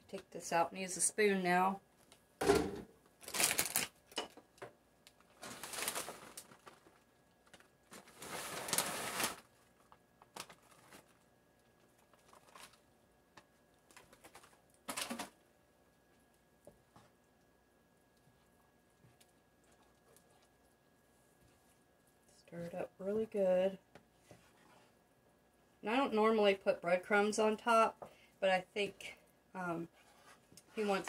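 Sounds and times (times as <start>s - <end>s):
plastic bag crinkling: 3.2s - 4.0s, 5.1s - 12.9s, 13.8s - 15.4s.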